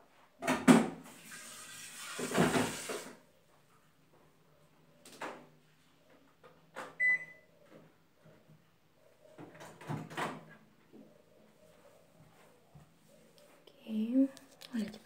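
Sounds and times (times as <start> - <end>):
microwave keypad beep: 7.0 - 7.5.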